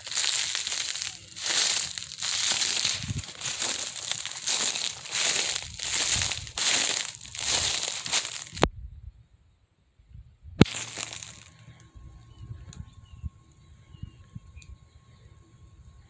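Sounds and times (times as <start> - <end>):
footsteps crunching dry leaves: 0.0 - 8.7, 10.6 - 11.9.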